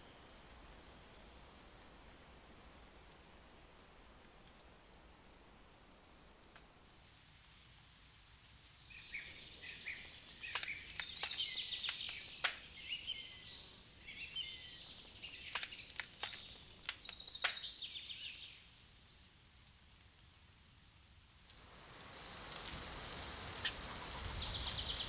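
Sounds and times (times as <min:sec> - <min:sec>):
songbirds chirping: 0:00.0 - 0:06.9, 0:08.6 - 0:20.0, 0:23.6 - 0:25.0.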